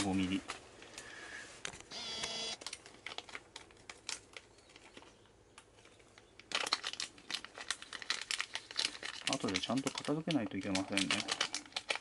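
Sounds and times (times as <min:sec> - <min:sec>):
small hard objects clicking: 0:02.6 - 0:12.0.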